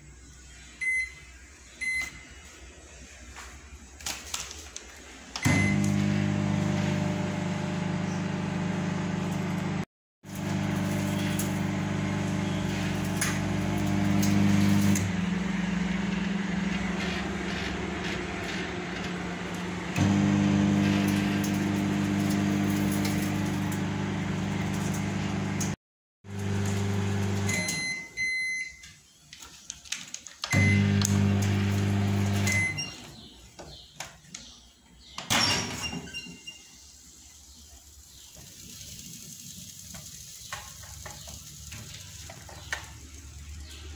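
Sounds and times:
microwave oven hum: 5.4s - 28.8s, 30.5s - 33.1s.

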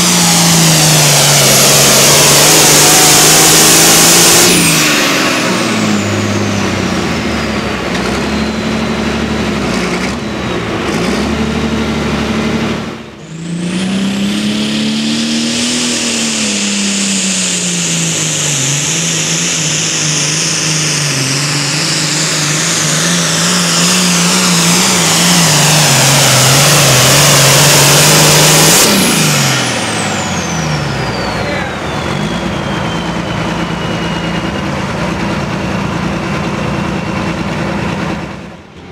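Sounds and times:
tractor engine under load: 0.0s - 38.9s
turbo whistle: 30.0s - 35.1s.

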